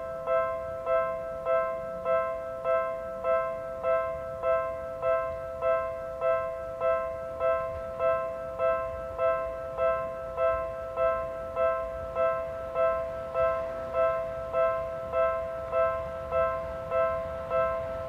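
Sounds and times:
level crossing warning bell dinging: 0.0 - 18.0.

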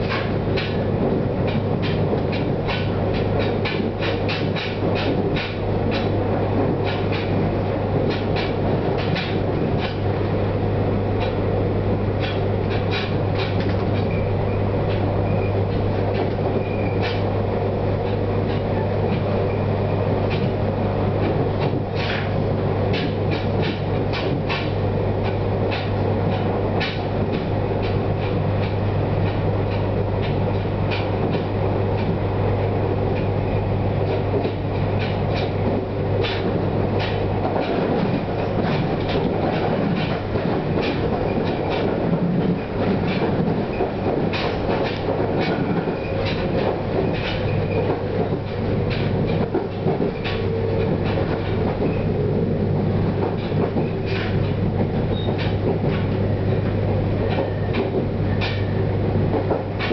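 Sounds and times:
wheels clicking over rail joints: 0.0 - 10.3, 12.2 - 17.4, 21.2 - 32.2, 34.0 - 59.9
train rumble: 0.0 - 59.9.

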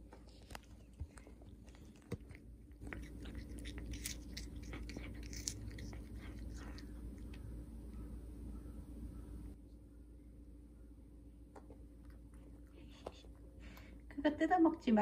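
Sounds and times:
cat chewing crunchy clicks: 0.2 - 7.6.

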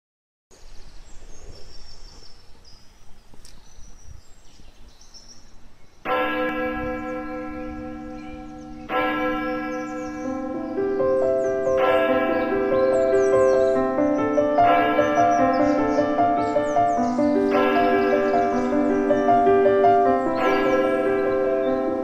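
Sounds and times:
birds chirping: 0.5 - 22.0
bell tones at other pitches: 6.1 - 22.0
large bell ringing: 6.1 - 22.0.

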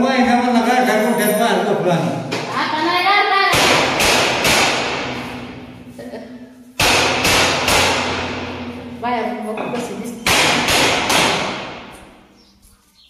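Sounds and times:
hammer striking window frame: 3.5 - 5.6, 6.8 - 8.9, 9.8 - 12.3.

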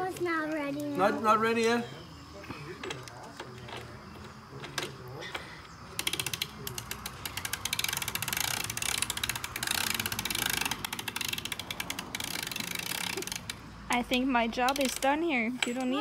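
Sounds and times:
socket ratchet clicking: 6.0 - 15.9.

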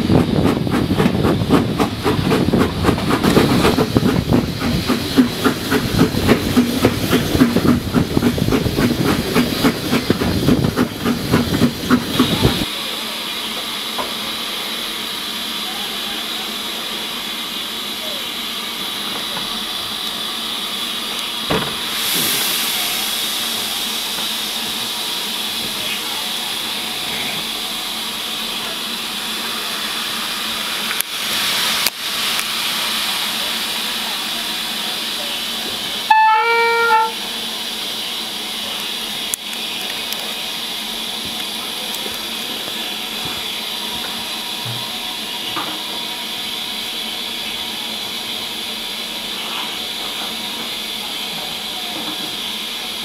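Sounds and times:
steam locomotive hissing: 0.0 - 53.0
short steam whistle: 36.0 - 37.3.

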